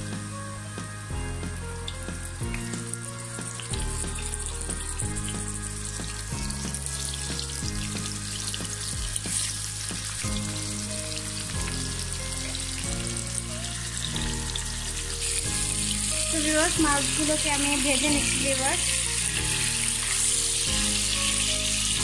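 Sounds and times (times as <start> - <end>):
background music of held notes: 0.0 - 22.0
fish sizzling in hot oil: 0.0 - 22.0.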